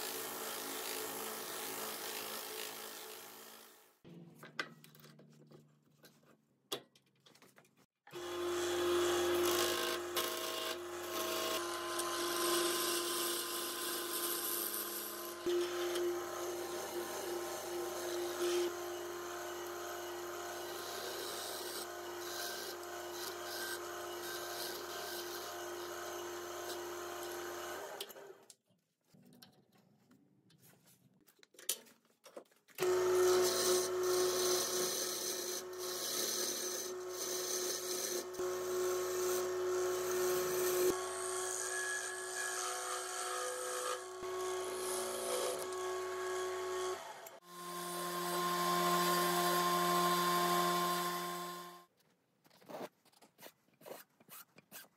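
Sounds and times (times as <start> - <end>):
wood lathe motor hum: 8.1 - 28.3, 32.8 - 51.8.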